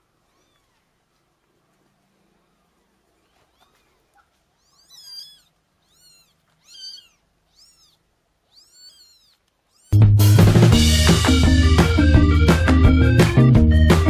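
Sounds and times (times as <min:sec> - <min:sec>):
newborn kittens mewing: 0:00.0 - 0:01.1, 0:02.5 - 0:10.1.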